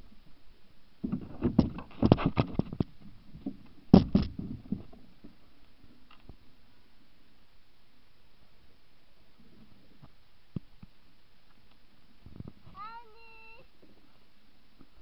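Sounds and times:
camera handling knocks and rustles: 0:01.1 - 0:04.9.

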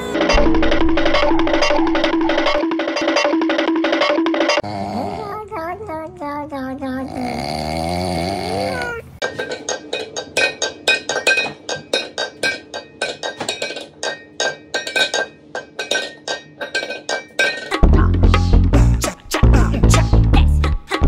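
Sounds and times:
wobbling sound effect: 0:00.0 - 0:04.6
metal bowls clanking on countertop: 0:00.2 - 0:04.6, 0:09.2 - 0:17.8.

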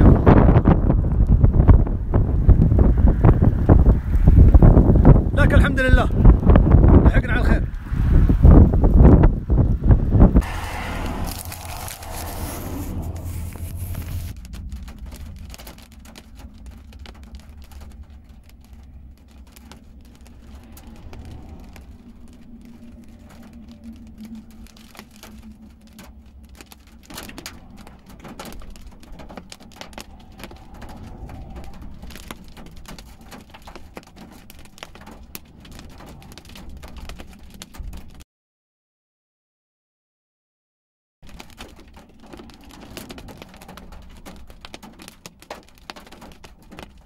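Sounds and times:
low car rumble: 0:00.0 - 0:05.4, 0:06.2 - 0:38.2
raindrops pattering on car roof: 0:00.0 - 0:38.2, 0:41.2 - 0:47.0.

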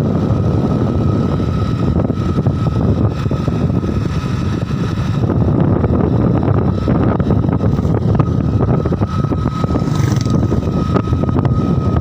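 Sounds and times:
motorcycle running: 0:00.0 - 0:12.0
wind buffeting microphone: 0:00.0 - 0:12.0.

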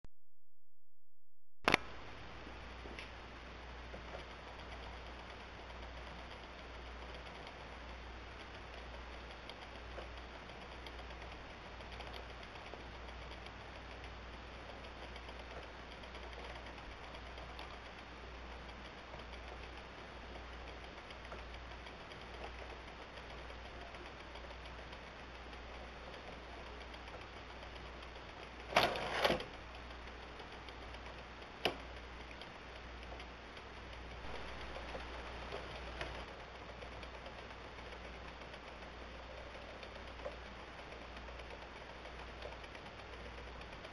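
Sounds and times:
low hum: 0:00.8 - 0:43.9
sharp click: 0:01.7 - 0:01.9
faint ticking: 0:01.7 - 0:43.9
wooden gears clicking: 0:03.8 - 0:43.9.

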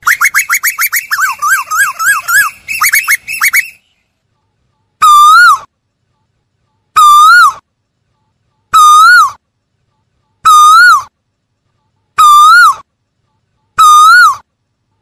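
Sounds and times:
bird calling loud note: 0:00.0 - 0:04.0, 0:10.4 - 0:11.1, 0:13.7 - 0:14.5.

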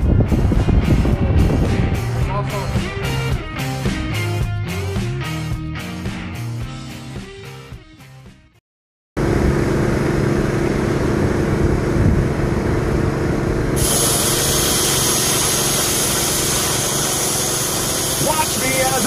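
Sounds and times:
grinder motor hum: 0:09.2 - 0:19.0
grinder grinding steel: 0:13.8 - 0:19.0.

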